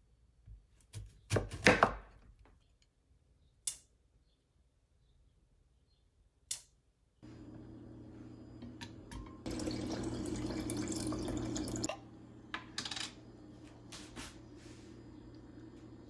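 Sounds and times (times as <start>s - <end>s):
tap water running: 7.3s - 16.0s.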